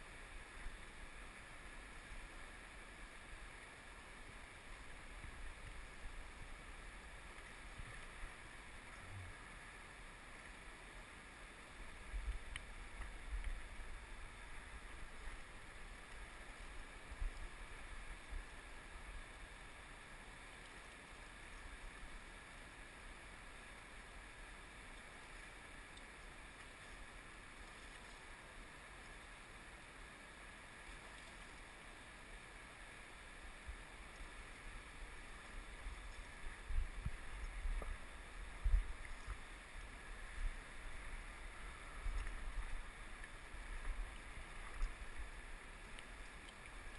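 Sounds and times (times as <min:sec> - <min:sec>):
wind on microphone: 0:35.8 - 0:39.4.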